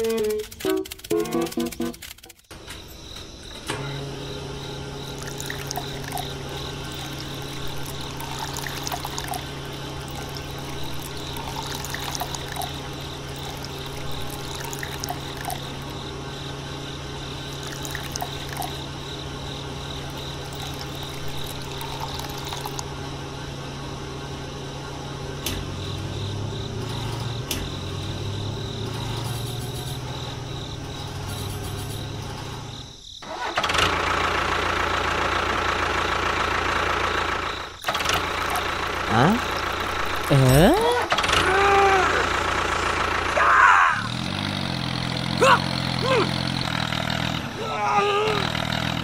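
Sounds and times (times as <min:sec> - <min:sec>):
water pump humming: 0:04.4 - 0:16.2, 0:17.2 - 0:23.0
water pouring and trickling: 0:05.1 - 0:16.0, 0:17.4 - 0:18.8, 0:20.1 - 0:22.8.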